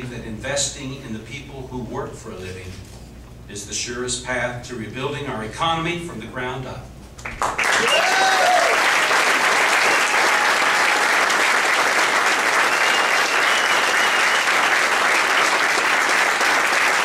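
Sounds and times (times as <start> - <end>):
crowd applauding: 7.2 - 17.0
person cheering: 7.7 - 9.0, 9.9 - 11.3.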